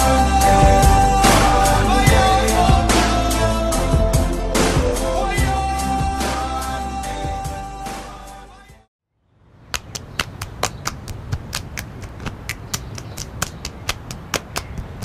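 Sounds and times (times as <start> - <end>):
music: 0.0 - 8.9
sharp clicks: 9.7 - 15.0.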